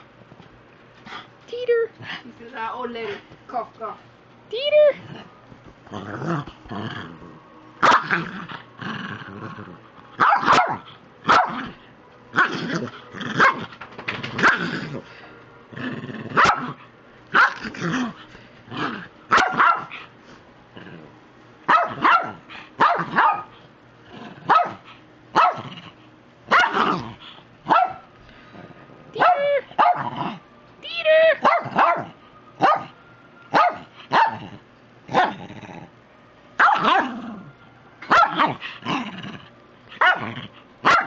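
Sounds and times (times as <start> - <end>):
small dog barking: 7.8 - 8.2, 10.2 - 11.7, 13.4 - 13.6, 16.4 - 17.7, 19.3 - 20.0, 21.7 - 23.6, 24.4 - 25.7, 26.5 - 27.0, 27.7 - 28.1, 29.2 - 30.2, 31.4 - 34.4, 36.6 - 37.2, 38.1 - 38.6, 40.0 - 41.0.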